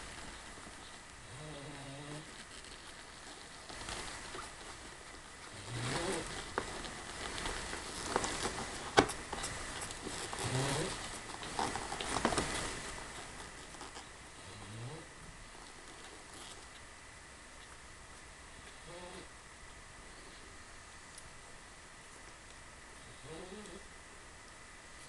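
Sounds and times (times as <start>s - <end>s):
soft rustling on blanket: 0.0s - 16.9s.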